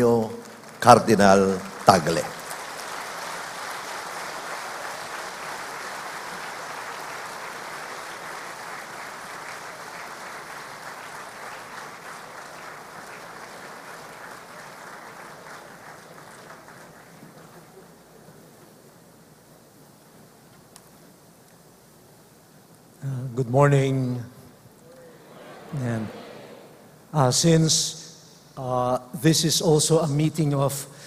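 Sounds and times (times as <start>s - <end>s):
audience applauding: 0.0s - 18.2s, 24.9s - 27.0s.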